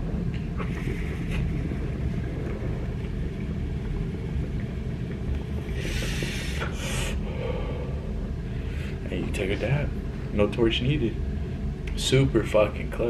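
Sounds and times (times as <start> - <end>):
water gurgling in glass pipe: 0.0 - 7.4
breathy rush of air: 5.5 - 9.1.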